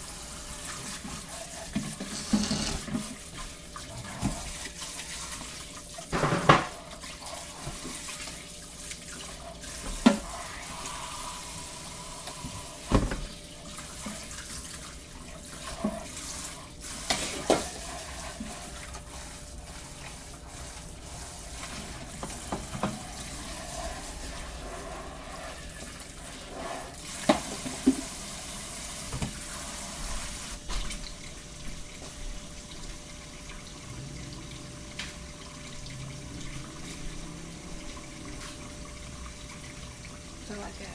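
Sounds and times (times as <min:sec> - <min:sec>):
knocks and clatters against sink: 0:01.7 - 0:03.2, 0:06.1 - 0:06.8, 0:22.2 - 0:23.1
tap running into sink: 0:01.7 - 0:03.2, 0:06.1 - 0:06.8, 0:09.8 - 0:10.3, 0:12.2 - 0:13.4, 0:17.1 - 0:17.8, 0:21.6 - 0:23.2, 0:27.2 - 0:28.2, 0:29.0 - 0:29.4.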